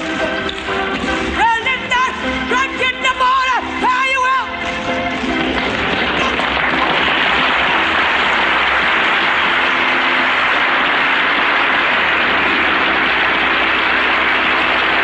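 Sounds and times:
audience applauding: 4.4 - 15.0.

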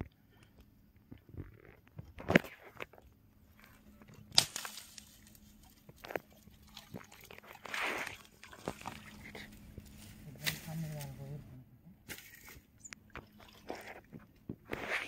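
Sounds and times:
dry branches crackling and snapping: 1.8 - 11.2
sharp branch cracks: 4.3 - 6.1, 10.4 - 11.2.

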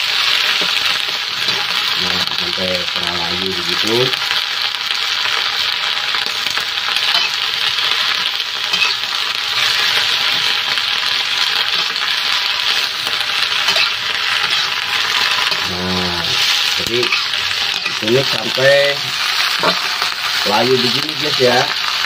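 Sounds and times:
greens sizzling in a wok: 0.0 - 22.0
metal spatula scraping a pan: 0.5 - 1.9, 6.9 - 7.5, 8.1 - 10.5, 12.6 - 21.7.

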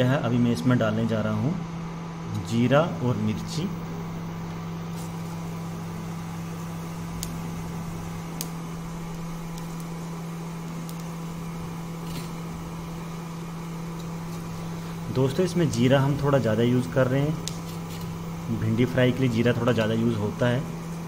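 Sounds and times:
induction cooktop hum: 0.0 - 21.0
seeds crackling in oil: 4.3 - 21.0.

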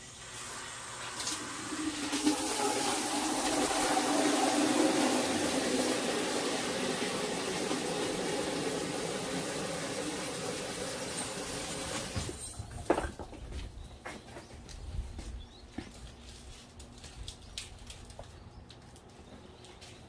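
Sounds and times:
tap water running into container: 0.0 - 12.4.

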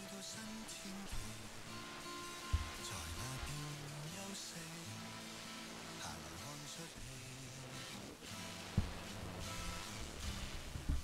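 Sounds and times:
music through radio speaker: 0.0 - 11.0
radio hiss: 0.0 - 11.0
low thump of antenna handled: 8.8 - 9.0.

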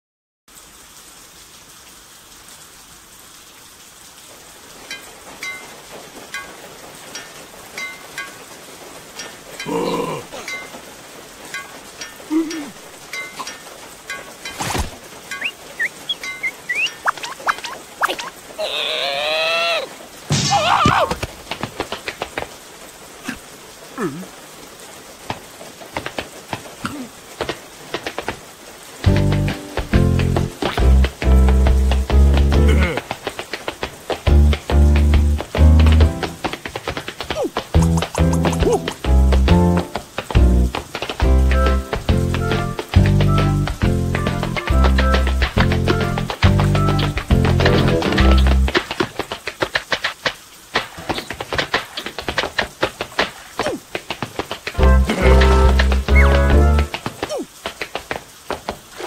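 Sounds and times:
steady rain falling: 0.5 - 59.0
water drips: 0.5 - 59.0
water drops plinking: 4.9 - 8.5, 9.2 - 10.9, 11.5 - 18.4
cartoon character vocal squeak: 15.8 - 19.9
cartoon creature shouting: 18.6 - 21.2.

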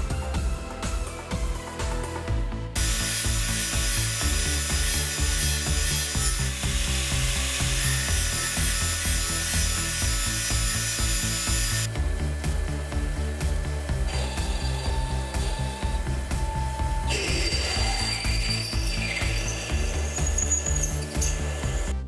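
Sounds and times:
angle grinder grinding steel: 2.8 - 11.9, 14.0 - 22.0.

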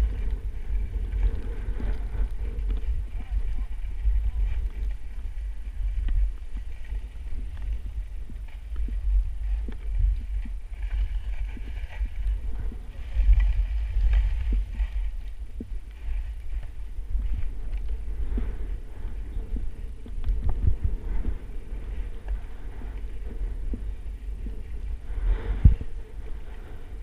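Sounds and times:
skis scraping on snow: 0.0 - 15.3
wind buffeting microphone: 0.0 - 27.0.

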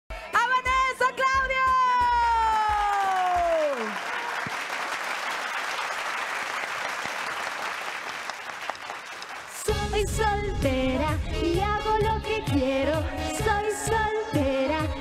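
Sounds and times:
audience applause: 2.6 - 9.7.

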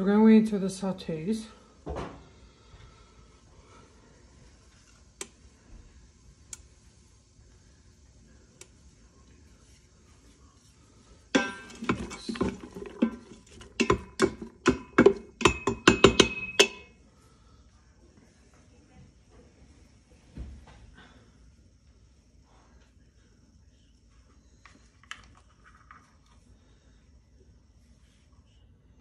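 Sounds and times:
kitchenware clinking and clattering: 11.4 - 16.9.

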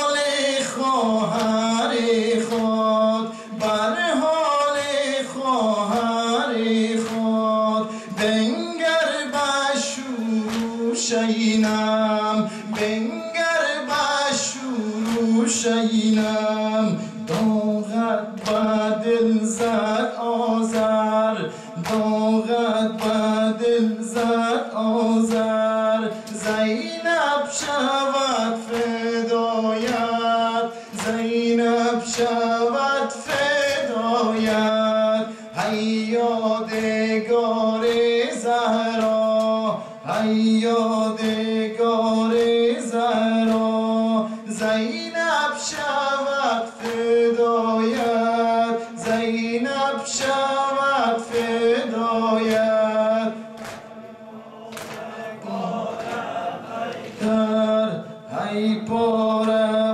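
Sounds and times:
men chanting a lament: 0.0 - 59.9
hand slaps on chest: 54.7 - 55.0.

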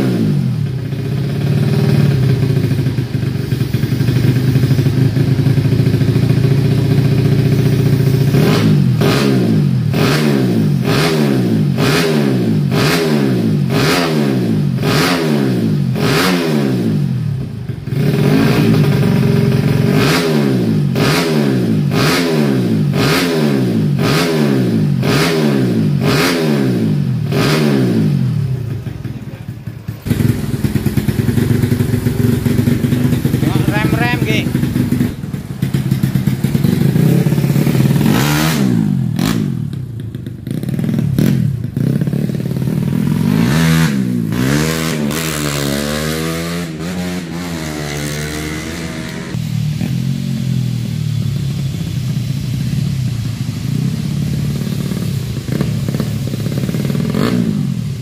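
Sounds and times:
motorcycle engine idling: 0.0 - 10.0, 16.9 - 21.0, 27.9 - 43.4, 49.4 - 58.0
motorcycle engine revving: 0.0 - 58.0.

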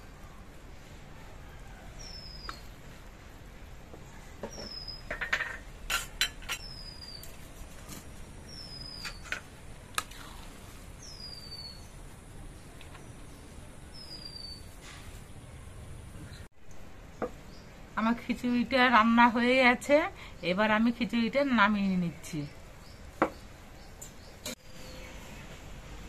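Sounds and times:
metal spoon scraping metal pot: 5.1 - 6.8.

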